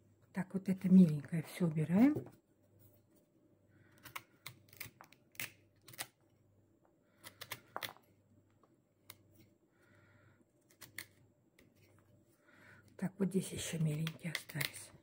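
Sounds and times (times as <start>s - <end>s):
knife snicking and scraping root: 4.0s - 6.2s.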